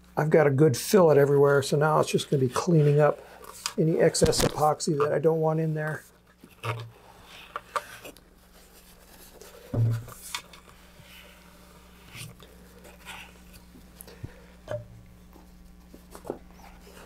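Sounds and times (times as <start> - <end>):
paper towel rubbing and rustling: 1.2 - 6.2, 8.4 - 14.0.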